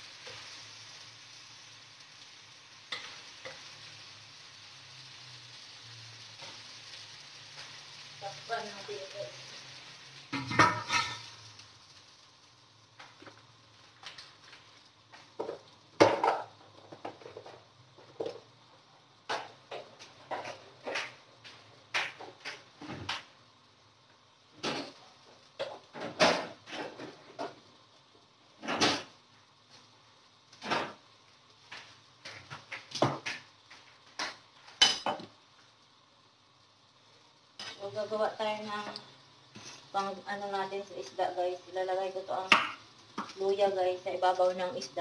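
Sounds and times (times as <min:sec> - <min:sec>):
dishes and pots clinking: 0:10.3 - 0:11.4, 0:15.4 - 0:18.4, 0:25.6 - 0:27.6, 0:34.2 - 0:35.3.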